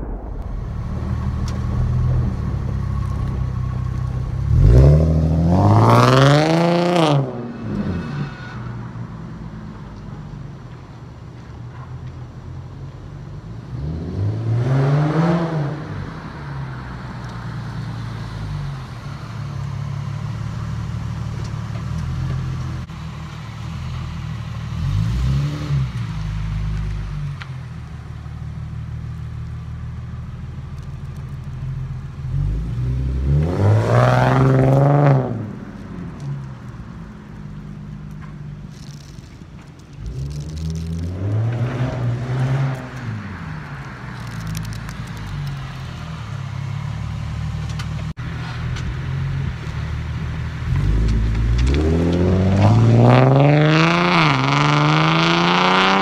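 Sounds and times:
exhaust rumble: 0:00.0 - 0:13.7
car revving past: 0:32.3 - 0:35.8, 0:50.7 - 0:56.0.

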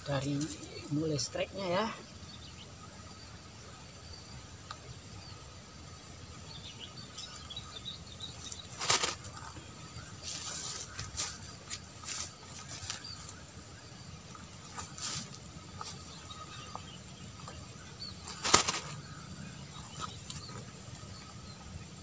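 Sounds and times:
short rustles and clicks: 0:08.5 - 0:09.3, 0:18.3 - 0:19.0.

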